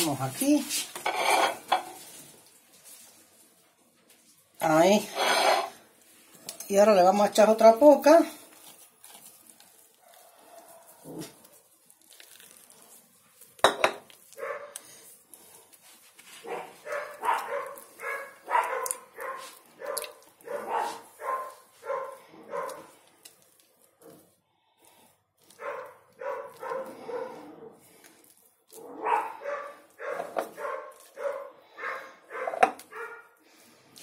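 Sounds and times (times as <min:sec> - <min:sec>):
dog yapping: 0:14.4 - 0:14.8, 0:16.4 - 0:22.9, 0:25.6 - 0:27.5, 0:28.9 - 0:33.3.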